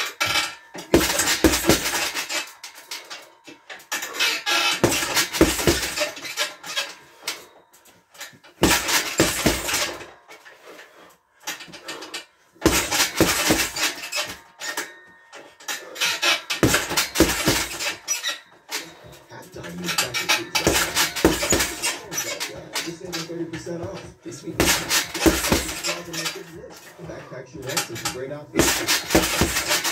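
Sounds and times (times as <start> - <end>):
boxing gloves smacking heavy bag: 4.8 - 6.1, 8.6 - 9.8, 16.6 - 17.9, 24.6 - 25.9, 28.6 - 29.9.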